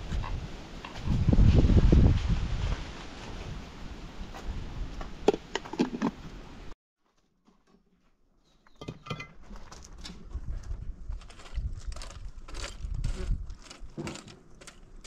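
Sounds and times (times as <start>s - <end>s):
wind noise: 0.0s - 6.7s, 9.8s - 14.2s.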